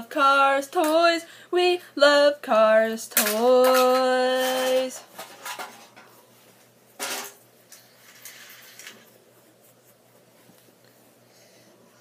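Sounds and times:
toy cars scraping on tile: 0:07.7 - 0:09.0.

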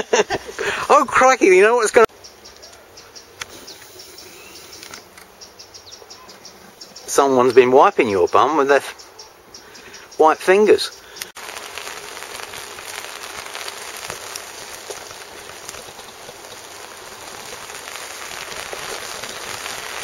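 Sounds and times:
light rain pattering: 0:03.6 - 0:20.0
small ticks: 0:11.0 - 0:20.0.

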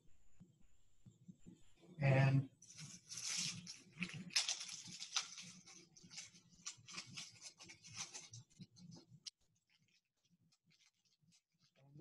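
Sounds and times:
food packaging crinkling: 0:02.6 - 0:11.8.

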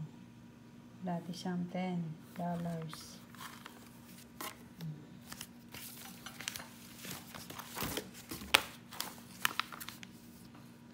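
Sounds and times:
faint steady hum: 0:00.0 - 0:10.9
paper pages rustling: 0:02.3 - 0:10.8.

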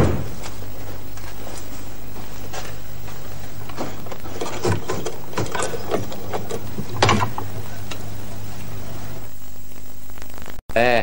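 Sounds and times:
steady low hum: 0:00.0 - 0:11.0
telephone crank clicking and rattling: 0:03.6 - 0:08.0.

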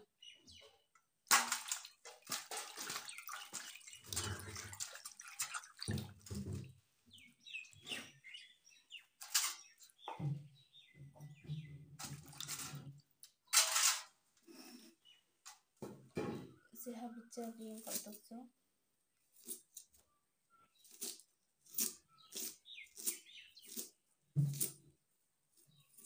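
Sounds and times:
water splashing in metal bowl: 0:01.2 - 0:06.8, 0:12.0 - 0:12.9.

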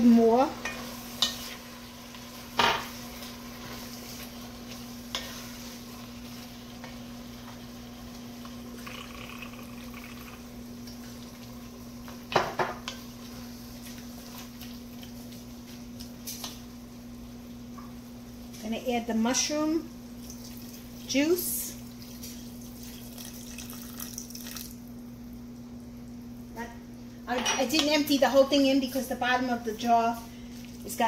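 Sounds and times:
wooden spoon stirring in pot: 0:00.0 - 0:09.7
low sizzle: 0:00.0 - 0:31.0.

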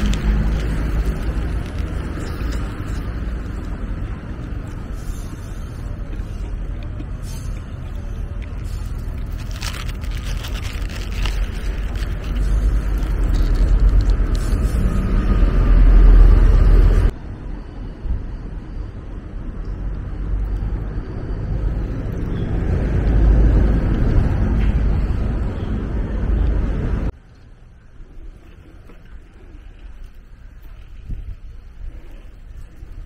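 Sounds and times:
wind buffeting microphone: 0:28.2 - 0:33.0.

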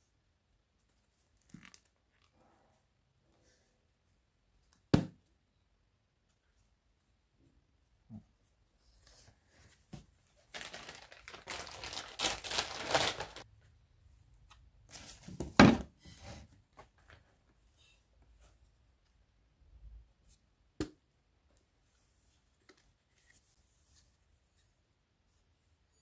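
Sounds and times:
plastic scraping and rustling: 0:10.5 - 0:13.4.

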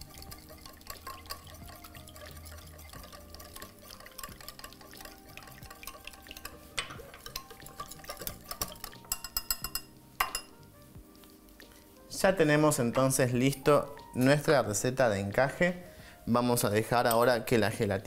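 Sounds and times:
whisk stirring paste in glass bowl: 0:00.0 - 0:10.5
whisk clinking against glass: 0:00.0 - 0:10.6.

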